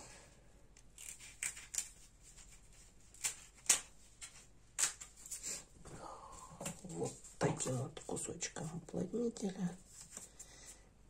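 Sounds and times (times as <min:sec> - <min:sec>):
foam strip clicks and rustles: 0:00.8 - 0:05.5.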